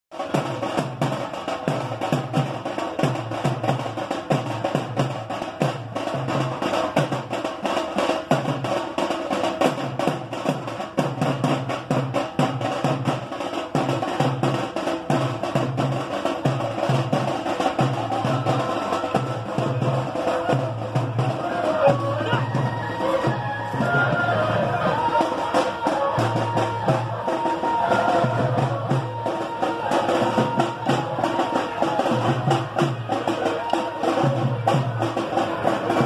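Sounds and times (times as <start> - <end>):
fast drumming music: 0.1 - 36.0.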